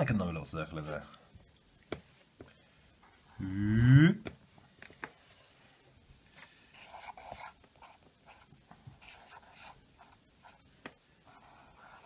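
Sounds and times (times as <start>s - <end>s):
pen scratching on paper: 6.7s - 10.6s, 11.3s - 12.0s.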